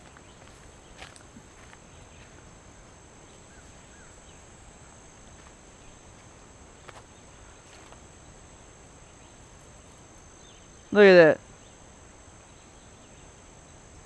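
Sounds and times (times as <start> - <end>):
insect chorus drone: 0.0 - 14.0
faint bird chirps: 3.2 - 4.7.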